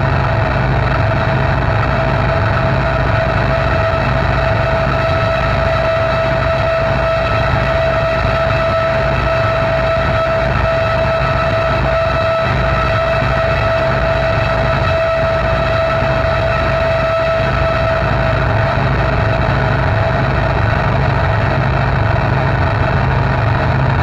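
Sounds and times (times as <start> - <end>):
harsh electronic drone: 0.0 - 24.0
steady held tone: 0.0 - 24.0.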